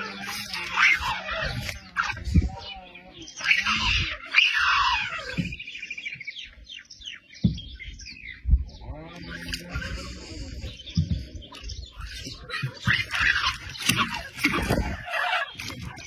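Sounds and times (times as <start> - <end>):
bird chirping: 0.0 - 16.0
sharp low thumps: 7.4 - 11.8.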